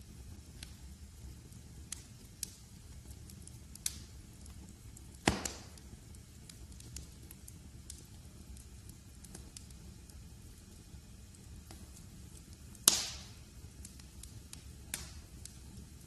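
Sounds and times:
log fire crackling: 0:00.0 - 0:16.0
loud pop from fire: 0:05.1 - 0:05.9, 0:12.8 - 0:13.4, 0:14.8 - 0:15.3.

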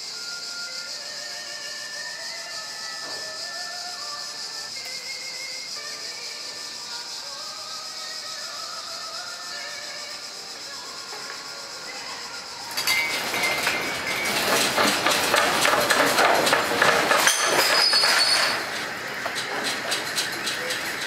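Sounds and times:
building rattling in earthquake: 0:12.8 - 0:21.0.

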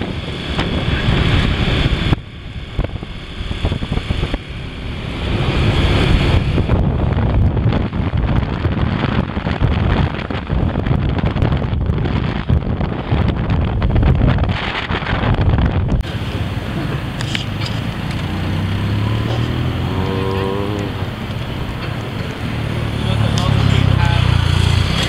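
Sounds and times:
motorcycle engine running: 0:00.0 - 0:25.0
road noise: 0:00.0 - 0:25.0
wind buffeting microphone: 0:00.0 - 0:25.0.

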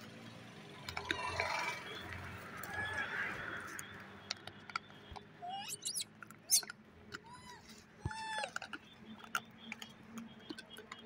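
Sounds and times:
monkeys squeaking: 0:05.4 - 0:09.8
small clicks: 0:08.4 - 0:11.0.

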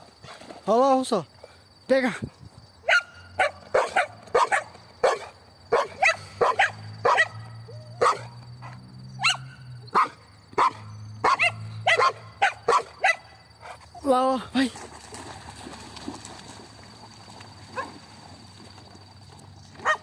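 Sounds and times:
dog barking excitedly: 0:02.8 - 0:13.8.

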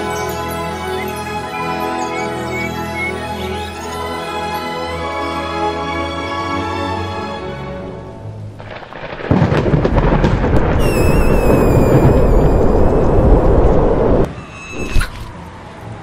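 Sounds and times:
music: 0:00.0 - 0:08.7
wavering whistle: 0:00.2 - 0:04.0, 0:10.8 - 0:13.3, 0:14.3 - 0:15.2
rushing wind: 0:08.6 - 0:15.5.

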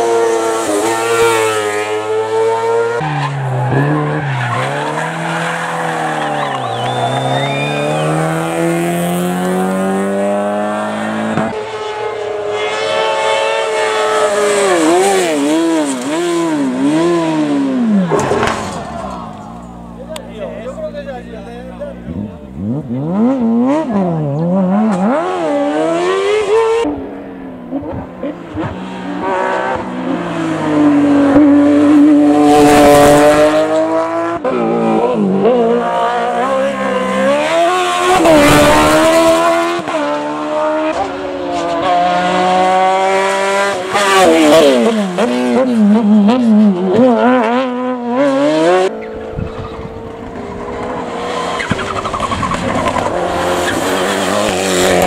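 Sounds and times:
race car engines revving hard: 0:00.0 - 0:55.0.

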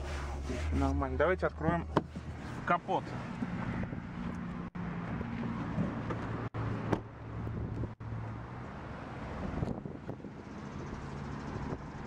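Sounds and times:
wind on microphone: 0:03.3 - 0:04.4, 0:09.3 - 0:12.0.

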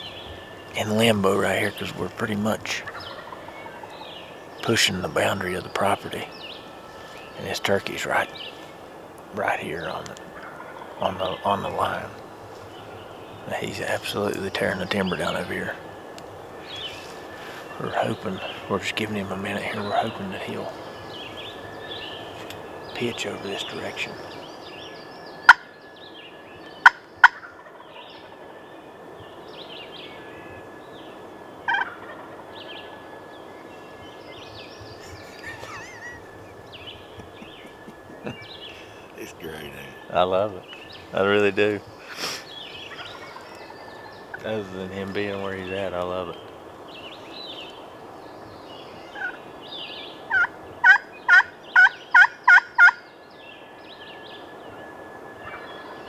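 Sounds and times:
turkey gobbling: 0:00.0 - 0:08.7, 0:09.4 - 0:16.8, 0:17.6 - 0:22.4, 0:25.5 - 0:25.7, 0:26.8 - 0:28.4, 0:31.6 - 0:33.0, 0:35.0 - 0:40.3, 0:41.1 - 0:45.6, 0:49.1 - 0:49.4, 0:50.1 - 0:53.0, 0:55.4 - 0:55.9
faint songbird chirps: 0:00.0 - 0:56.0
turkey yelping: 0:02.6 - 0:04.1, 0:10.3 - 0:11.7, 0:25.5 - 0:25.7, 0:26.8 - 0:28.3, 0:31.6 - 0:32.5, 0:42.1 - 0:44.7, 0:49.1 - 0:49.4, 0:50.3 - 0:53.0.

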